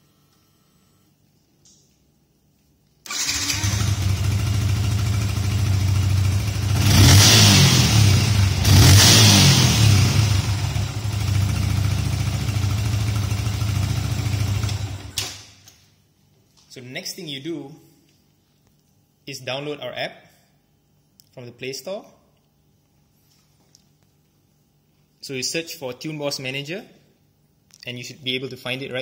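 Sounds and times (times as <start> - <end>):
motorcycle engine starting and revving: 3.1 - 15.4.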